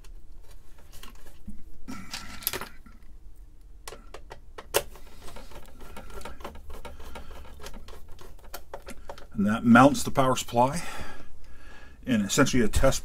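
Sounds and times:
screw and metal scraping: 5.2s - 9.2s.

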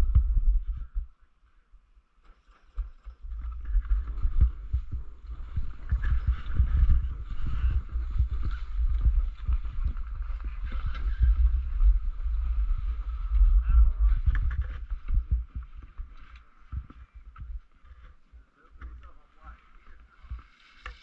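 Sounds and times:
low rumble: 3.3s - 18.1s.

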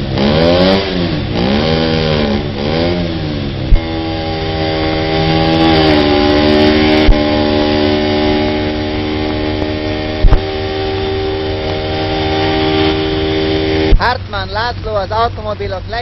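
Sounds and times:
motorcycle engine droning: 0.0s - 16.0s
sharp pops: 9.2s - 10.8s.

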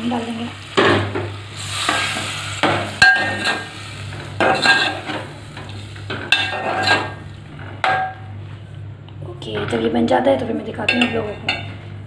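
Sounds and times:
frying sizzle: 0.0s - 8.8s.

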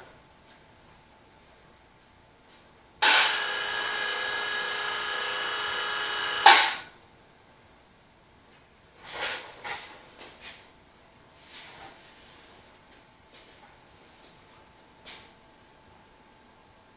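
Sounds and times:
electric hoist motor running: 3.0s - 6.9s.

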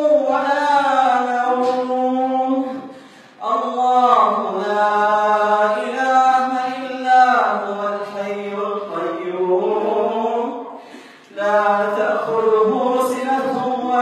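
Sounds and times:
man chanting melodic recitation: 0.0s - 10.6s, 11.3s - 14.0s
breath: 2.8s - 3.4s, 10.7s - 11.3s.

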